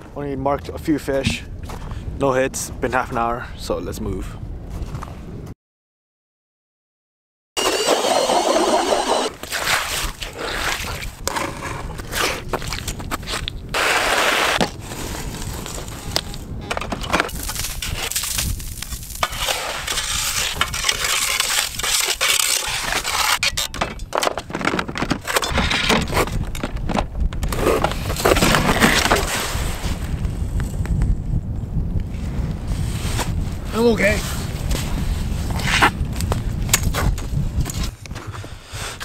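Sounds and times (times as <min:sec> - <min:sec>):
wind rumble on microphone: 0:00.0 - 0:05.5, 0:09.3 - 0:13.8, 0:14.6 - 0:39.0
ice and slush crunching: 0:07.6 - 0:15.9, 0:17.3 - 0:23.4.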